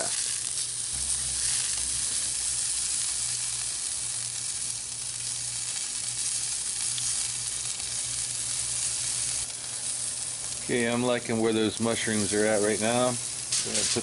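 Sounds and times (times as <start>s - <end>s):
vegetables sizzling on grill: 0.0s - 14.0s
low hum: 0.6s - 11.2s.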